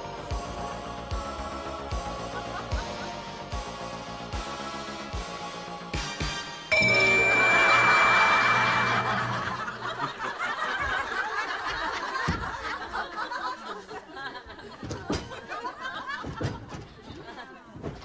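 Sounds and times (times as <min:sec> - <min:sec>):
studio audience laughing: 0:08.1 - 0:17.7.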